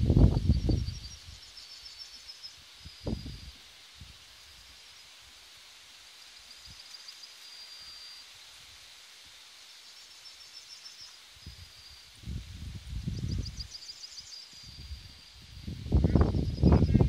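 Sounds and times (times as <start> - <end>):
steady hiss: 0.0 - 17.0
faint high chirping trills: 0.2 - 3.6, 6.3 - 8.4, 9.6 - 17.0.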